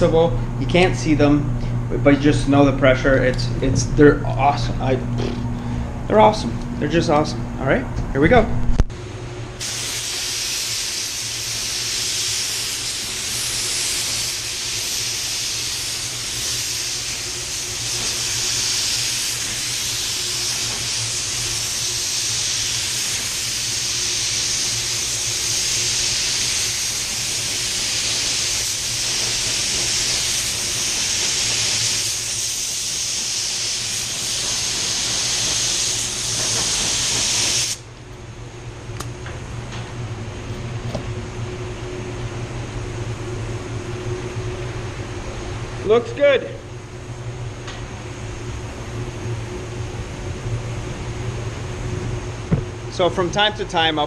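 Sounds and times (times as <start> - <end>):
spray gun hissing: 9.6 - 37.9.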